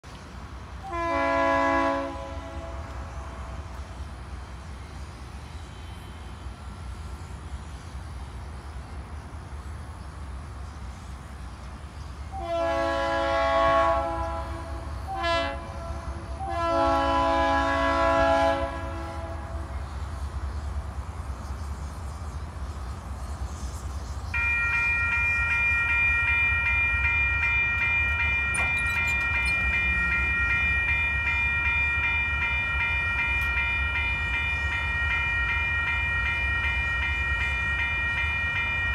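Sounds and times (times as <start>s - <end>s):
train air horn blasts: 0.8s - 3.9s, 12.3s - 19.7s
crossing warning bell ringing: 24.4s - 38.9s.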